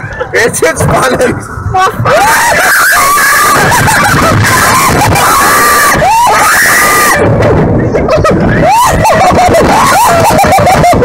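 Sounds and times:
wind rushing on microphone: 0.0s - 11.0s
riders screaming: 1.8s - 7.4s, 8.1s - 11.0s.

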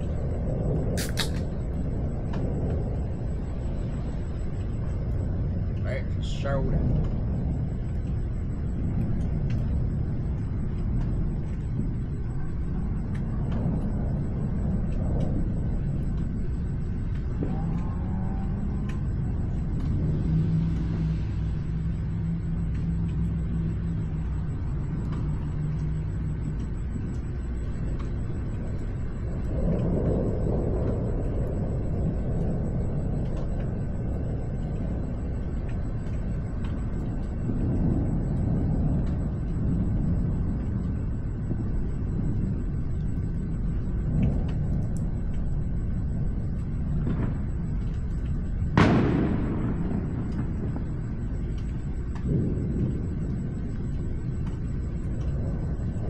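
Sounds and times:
thunder rumbling: 0.0s - 56.0s
sharp thunderclap: 46.9s - 47.8s, 48.5s - 56.0s.

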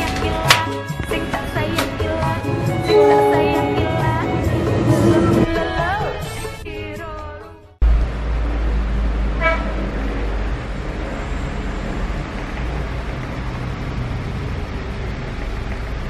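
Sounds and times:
road and open-air rumble: 7.8s - 16.0s.

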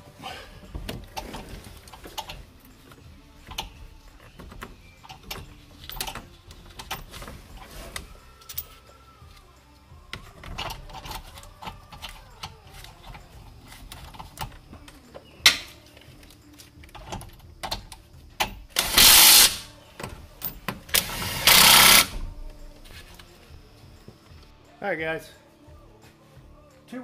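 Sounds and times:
bolts and tools rattling: 0.6s - 8.9s, 10.1s - 23.3s.

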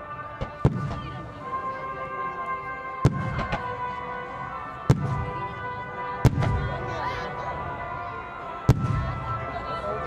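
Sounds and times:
background music: 0.0s - 10.0s
fireworks bangs and crackle: 0.3s - 1.2s, 3.0s - 3.7s, 4.9s - 5.4s, 6.2s - 6.8s, 8.7s - 9.3s.

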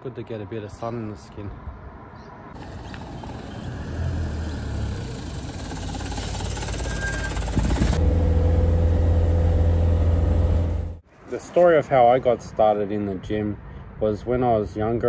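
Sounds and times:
minibus approaching: 2.5s - 11.0s
bus engine drone from inside: 2.6s - 11.0s.

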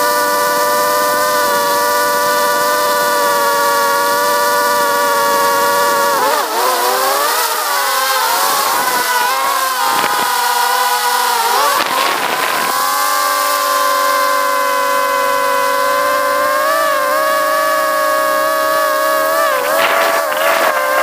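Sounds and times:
drone propellers whining: 0.0s - 21.0s.

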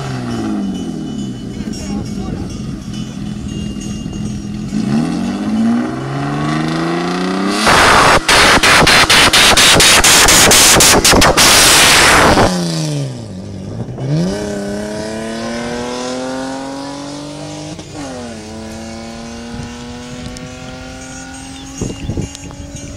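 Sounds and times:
engine accelerating through gears: 4.1s - 22.9s
drag racing cars launching: 4.5s - 22.7s.

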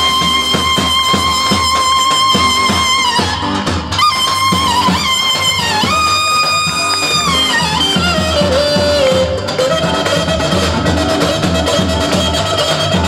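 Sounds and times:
sliding lead melody: 0.0s - 13.0s
steady drum beat: 0.0s - 13.0s.

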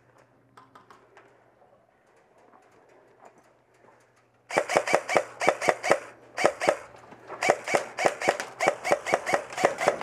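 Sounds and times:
airsoft rifle shots: 4.5s - 10.0s.

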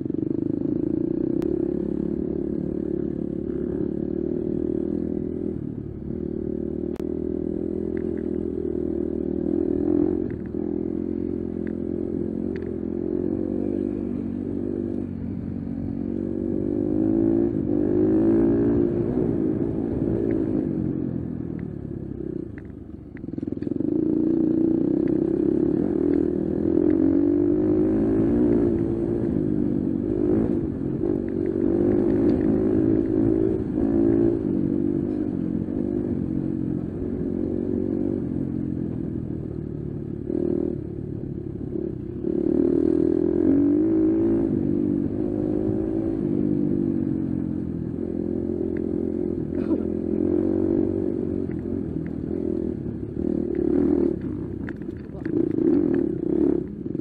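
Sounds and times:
dirt bike engine revving: 48.0s - 57.0s.

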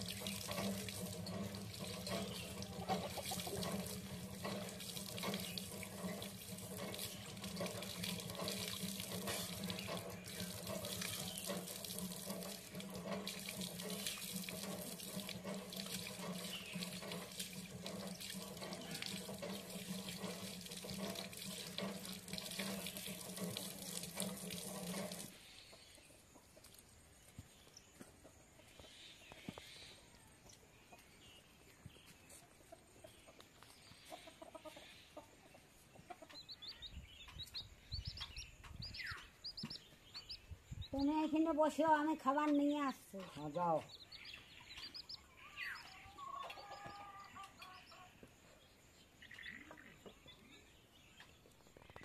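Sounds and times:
tap water splashing into basin: 0.0s - 25.3s.

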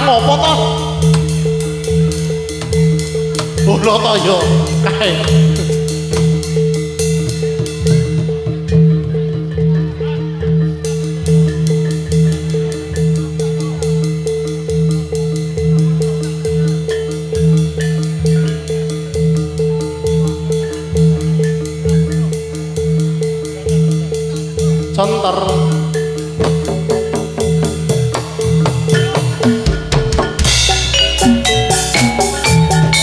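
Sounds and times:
fast ticking strokes: 0.0s - 9.8s
percussion ensemble quick beat: 0.0s - 33.0s.

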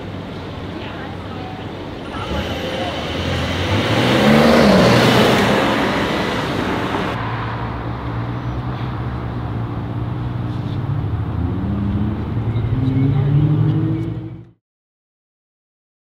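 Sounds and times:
car engines humming low: 0.0s - 14.6s
car driving past: 2.0s - 9.4s.

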